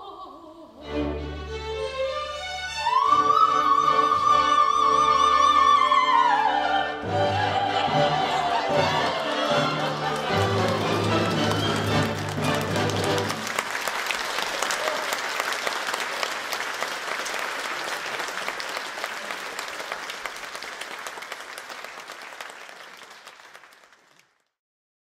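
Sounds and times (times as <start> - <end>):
music: 0.7 - 13.6
audience applause: 7.7 - 24.5.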